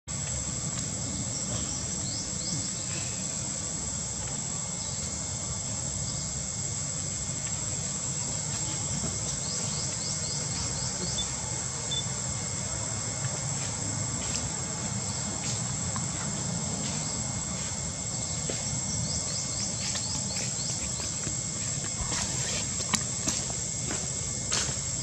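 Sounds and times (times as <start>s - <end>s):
insects droning: 0.1s - 25.0s.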